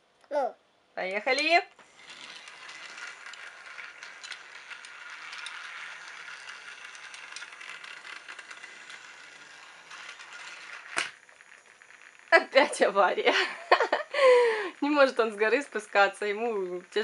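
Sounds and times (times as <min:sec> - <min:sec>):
toy train motor whirring: 0:01.0 - 0:17.0
toy train wheels rattling on track: 0:01.0 - 0:17.0.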